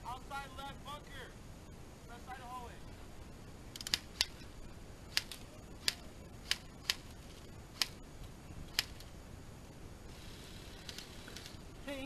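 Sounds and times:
airsoft gunshots: 5.1s - 8.1s.

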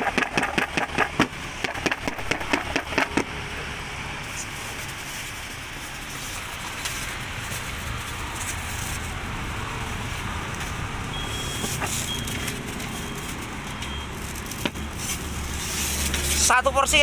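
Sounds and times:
plastic food tubs clicking: 0.0s - 3.3s
road traffic noise: 0.0s - 17.0s.

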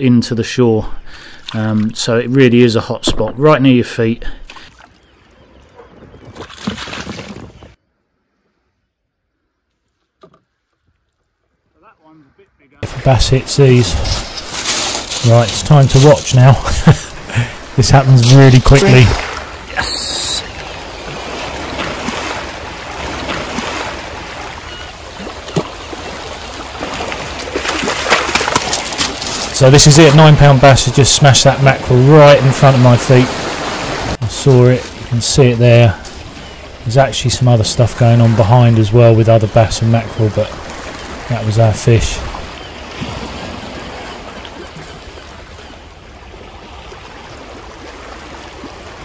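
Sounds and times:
small waves washing over shingle: 12.8s - 49.0s.

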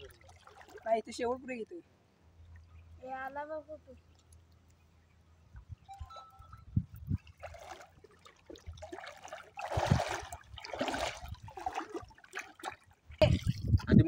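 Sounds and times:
water splashing from wading: 0.0s - 1.4s, 6.1s - 14.0s.

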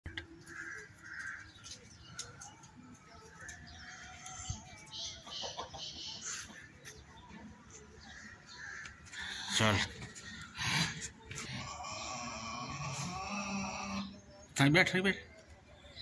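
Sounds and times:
birds chirping and calling: 0.1s - 16.0s.

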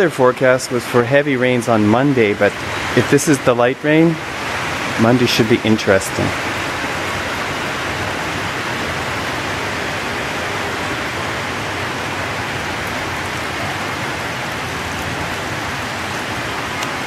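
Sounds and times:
steady rain: 0.0s - 17.0s.

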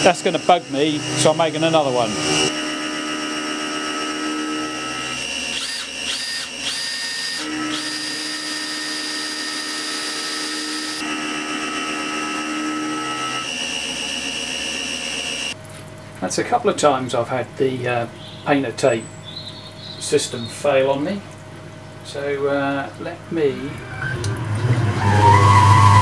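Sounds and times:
cordless drill boring into metal: 0.0s - 13.5s
steady machine noise: 0.0s - 26.0s.

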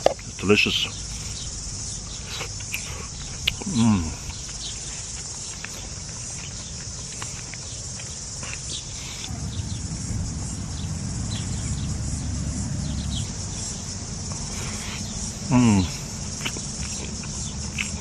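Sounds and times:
insect chorus chirring: 0.0s - 18.0s
low rumble: 9.3s - 14.3s.

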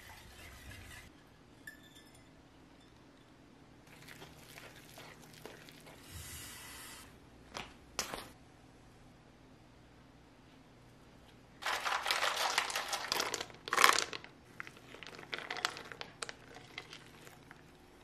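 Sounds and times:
blueberries rattling into bowl: 11.6s - 17.4s.

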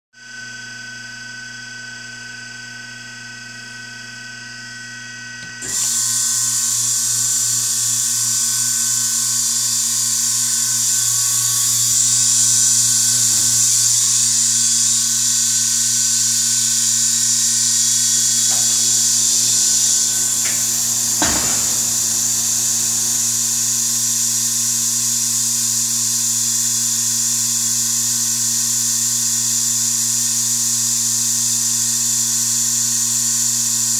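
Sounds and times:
machine motor hum with whine: 0.2s - 33.9s
sharp clunk: 18.4s - 22.3s.

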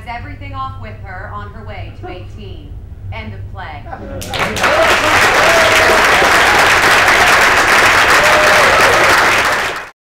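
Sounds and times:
audience clapping: 4.2s - 10.0s.

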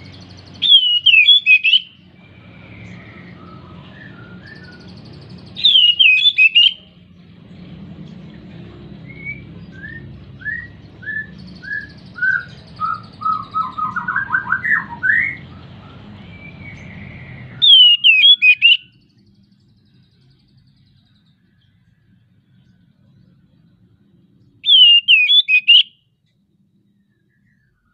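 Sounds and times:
bird singing sharp whistles: 0.5s - 6.8s, 9.1s - 15.4s, 16.3s - 19.0s, 24.6s - 26.0s.

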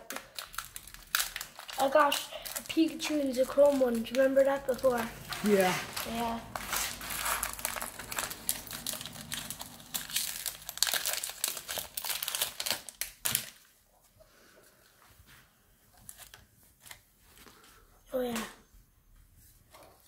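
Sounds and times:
foil wrapper crinkling and tearing: 0.0s - 13.7s.

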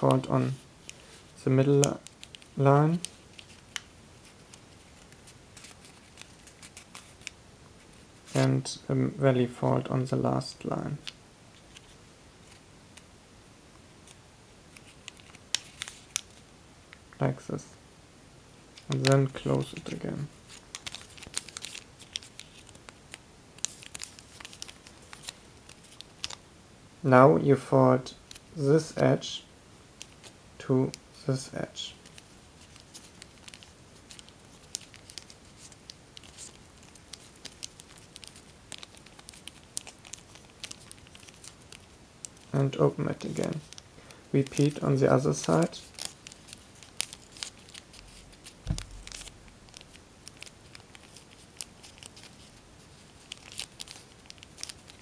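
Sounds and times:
foil paper crackling: 2.0s - 7.4s, 18.8s - 26.4s, 32.0s - 42.6s, 43.2s - 55.0s.

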